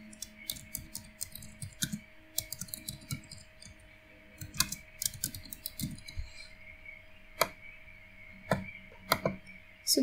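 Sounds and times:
keyboard typing clicks: 0.1s - 3.8s, 4.4s - 6.2s, 8.5s - 9.4s.

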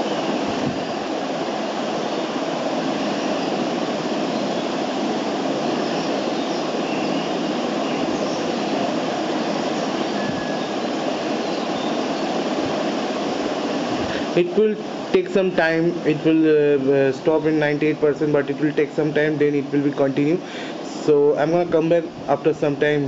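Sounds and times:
steady rushing noise: 0.0s - 23.0s.

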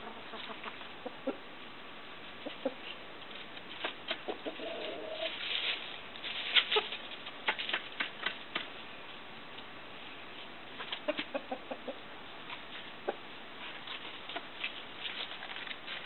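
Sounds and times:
chickens clucking: 0.0s - 1.5s, 2.3s - 8.7s, 10.8s - 16.0s.

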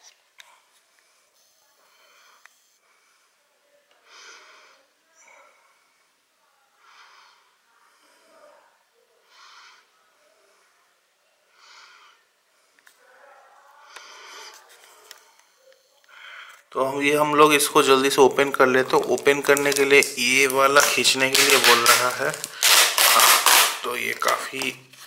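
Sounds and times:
person breathing: 13.8s - 16.7s, 22.2s - 23.4s
plastic blister pack crackling: 17.3s - 25.0s.

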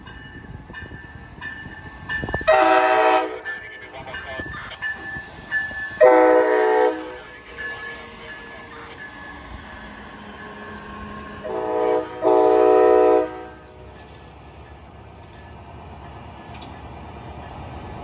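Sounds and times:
train rumbling by: 0.0s - 18.0s
locomotive air horn blasts: 2.5s - 3.4s, 6.0s - 7.2s, 11.4s - 13.7s.

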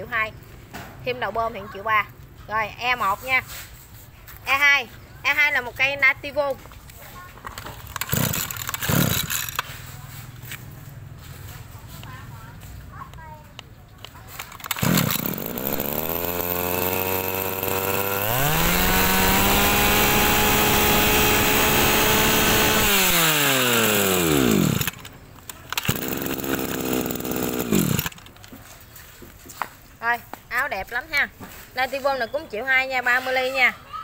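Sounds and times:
brush cutter engine revving: 7.8s - 10.6s, 14.3s - 28.5s.

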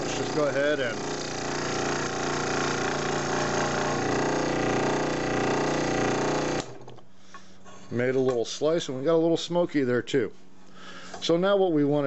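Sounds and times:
scroll saw cutting wood: 0.0s - 6.8s.

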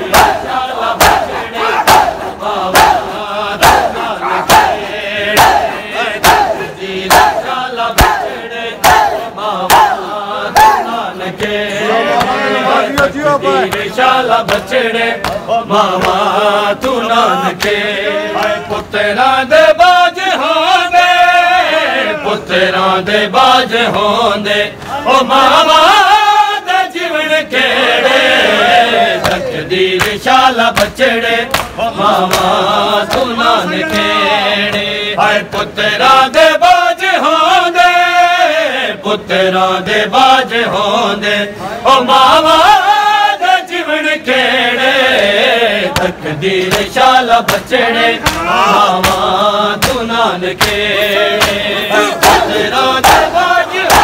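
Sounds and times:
men chanting in unison: 0.0s - 54.0s
chest beating slaps: 1.0s - 11.6s, 12.2s - 17.8s, 29.2s - 35.7s, 45.9s - 54.0s.

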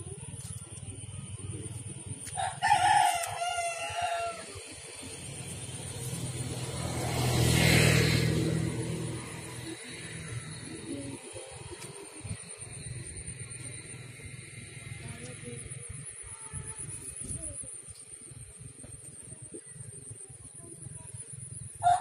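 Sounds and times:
rooster crowing: 2.4s - 4.7s, 21.8s - 22.0s
vehicle passing: 3.9s - 16.2s.

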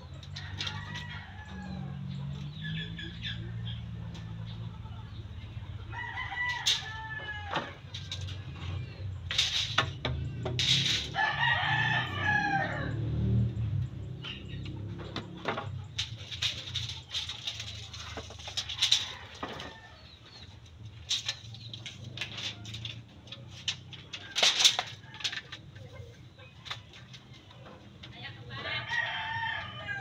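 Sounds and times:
bamboo cracking and scraping: 6.3s - 11.2s, 14.3s - 26.0s.

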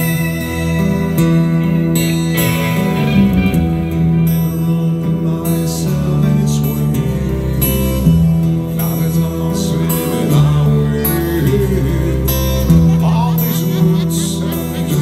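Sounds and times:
live rock band playing: 0.0s - 9.0s.

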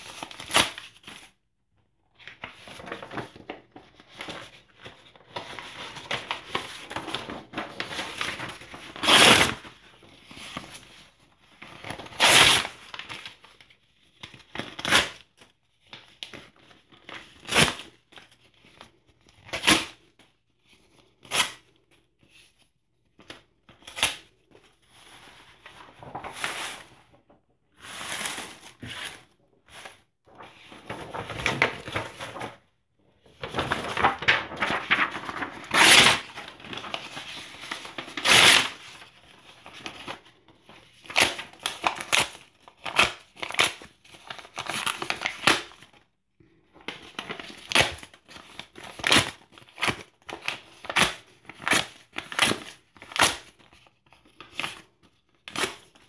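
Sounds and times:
newspaper ripping: 0.0s - 1.3s, 4.2s - 9.8s, 25.5s - 27.2s, 27.8s - 32.6s, 33.3s - 40.2s, 41.0s - 45.9s, 47.2s - 53.6s
paper rustling and crinkling: 2.2s - 20.1s, 22.2s - 46.0s.

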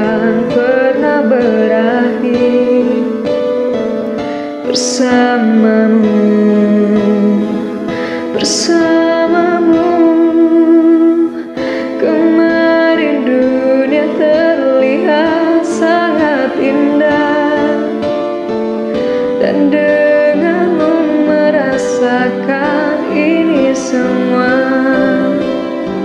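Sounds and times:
woman singing: 0.0s - 18.5s, 19.2s - 26.0s
ballad backing track: 0.0s - 26.0s.

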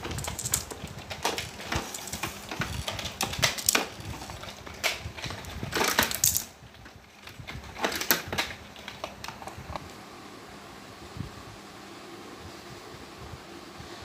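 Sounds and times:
plastic toys knocking and clattering: 0.0s - 9.6s.

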